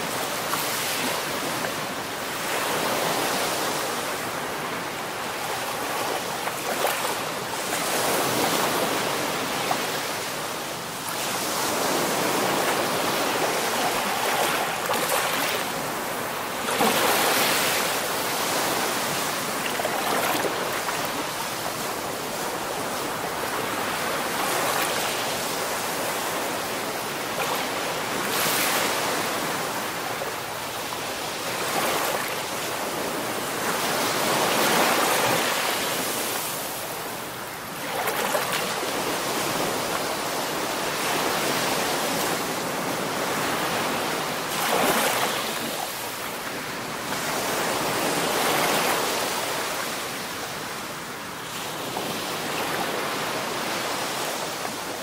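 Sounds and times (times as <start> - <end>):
sea waves rushing surf: 0.0 - 50.4.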